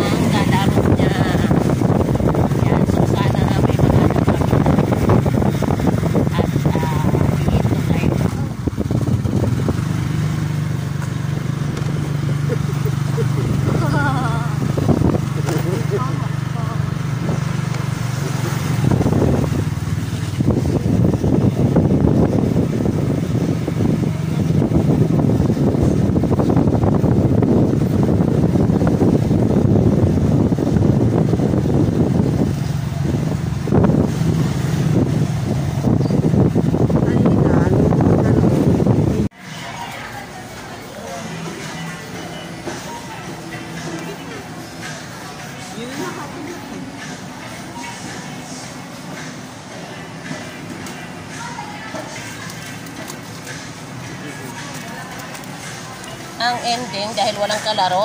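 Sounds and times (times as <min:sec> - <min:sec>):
wind on microphone: 0:00.0 - 0:39.4
scooter engine running: 0:00.0 - 0:58.0.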